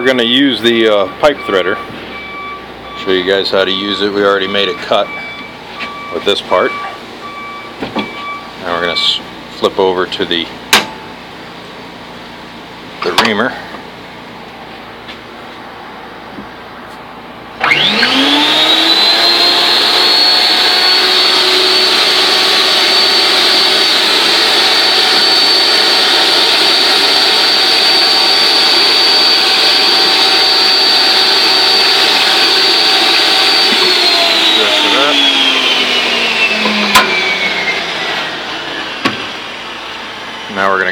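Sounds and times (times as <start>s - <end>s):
pipe threader motor whining: 0.0s - 11.1s, 17.4s - 40.9s
reamer deburring spinning pipe: 19.4s - 38.5s.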